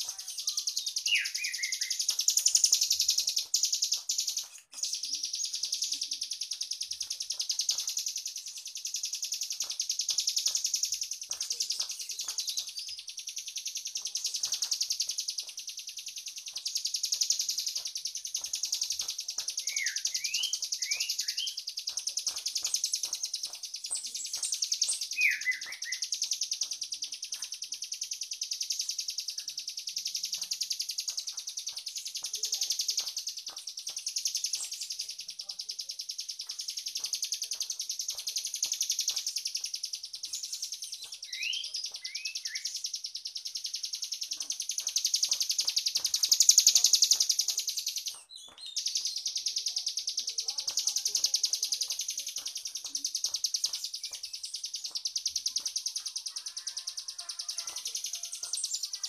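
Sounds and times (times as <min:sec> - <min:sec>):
bird chattering trill: 0:00.0 - 0:59.0
bird upward-sweeping whistles: 0:00.4 - 0:04.1, 0:19.7 - 0:21.6, 0:24.7 - 0:26.3, 0:41.3 - 0:42.9.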